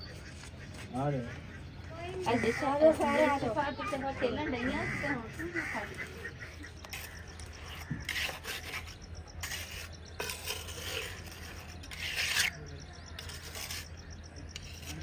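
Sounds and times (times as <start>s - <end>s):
trowel scraping mortar: 5.8s - 15.0s.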